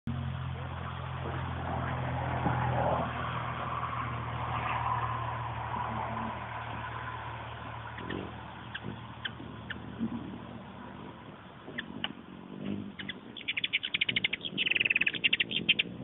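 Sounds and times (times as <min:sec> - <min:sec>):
low engine drone: 0:00.1 - 0:16.0
hummingbird chirps: 0:07.4 - 0:16.0.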